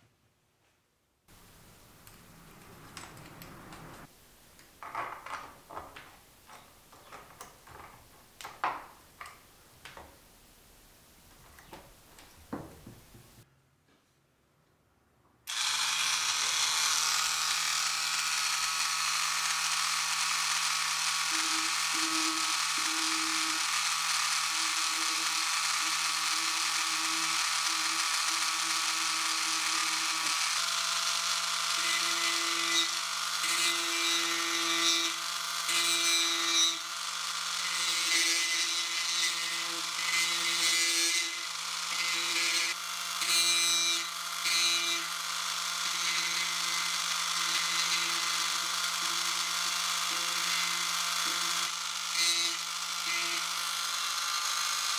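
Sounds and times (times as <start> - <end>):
rotary tool whining: 15.5 - 54.9.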